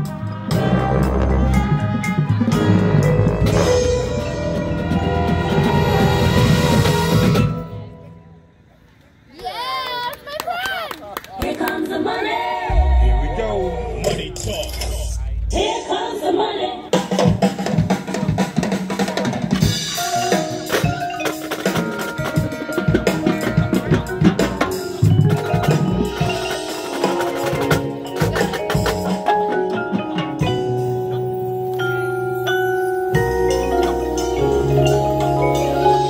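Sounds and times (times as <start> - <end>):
bass drums: 12.7 - 16.2
snare and tenor drums: 17.0 - 29.4
mallet keyboard notes: 20.0 - 36.0.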